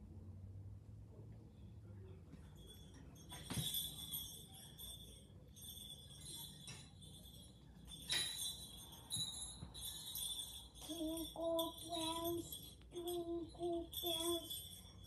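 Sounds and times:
faint music: 0.0s - 15.0s
sleigh bells jingling: 2.3s - 15.0s.

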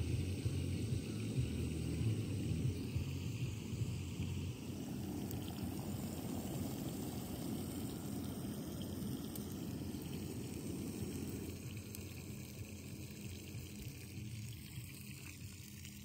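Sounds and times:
gas stove burner rushing: 0.0s - 12.3s
water bubbling in pot: 0.0s - 16.0s.

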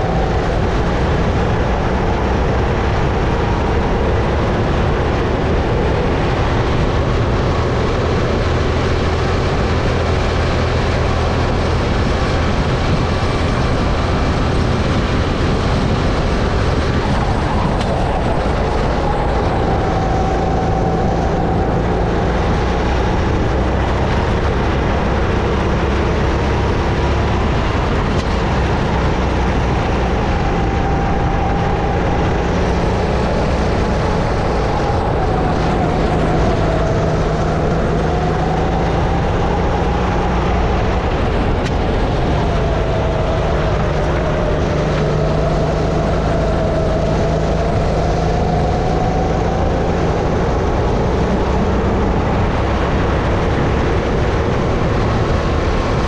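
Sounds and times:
kart engine revving: 0.0s - 56.0s
wind rush on camera: 0.0s - 56.0s.

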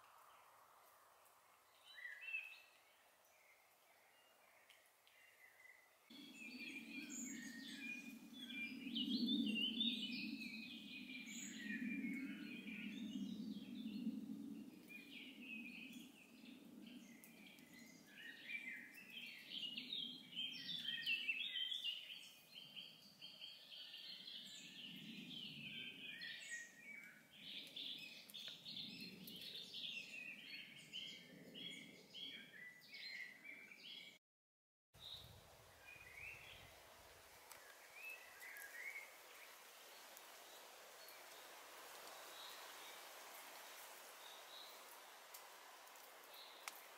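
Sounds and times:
small birds singing and chirping: 1.6s - 34.2s, 35.0s - 46.9s.

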